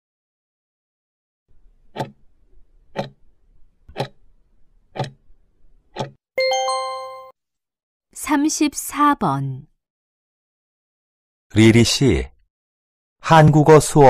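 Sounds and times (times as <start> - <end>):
clock ticking: 1.9 - 2.2, 3.0 - 3.2, 5.0 - 5.2
bell-like chime: 6.4 - 7.3.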